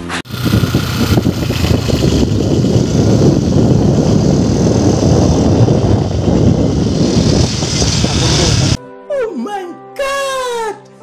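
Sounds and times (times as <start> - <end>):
moving vehicle running: 0.0 - 8.8
wind rumble on microphone: 0.3 - 8.8.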